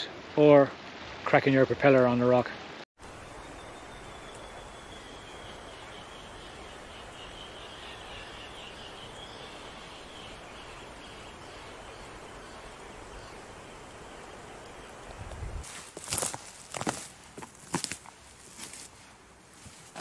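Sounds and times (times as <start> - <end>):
steady outdoor hiss: 0.0 - 20.0
faint high chirps: 3.1 - 13.4.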